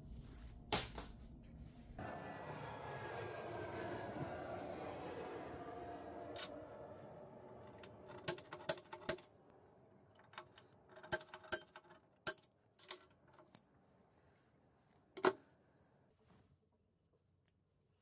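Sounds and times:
drawer slide rolling whir: 2.0 - 9.4.

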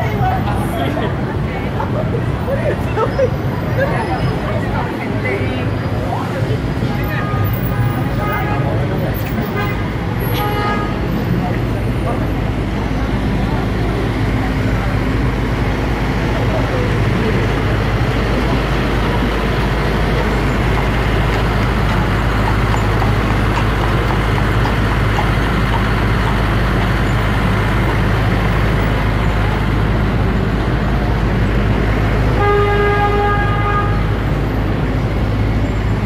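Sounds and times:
street traffic rumble: 0.0 - 36.0
car horn honk: 9.5 - 11.1, 32.4 - 34.1.

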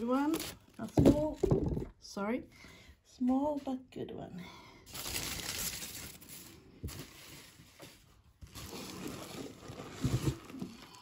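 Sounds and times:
paper rustling and crinkling: 4.9 - 11.0.

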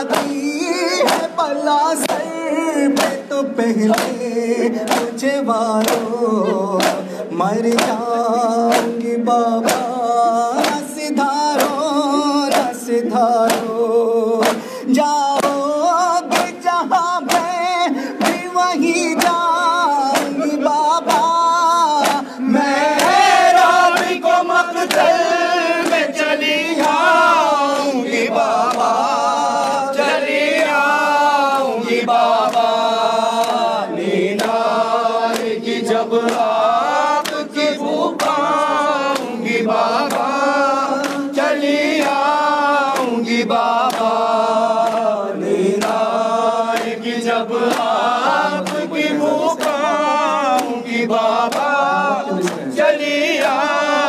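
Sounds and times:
hands beating on chests: 0.0 - 3.2, 3.8 - 6.2, 6.8 - 27.1
crowd of men chanting: 0.0 - 54.0.

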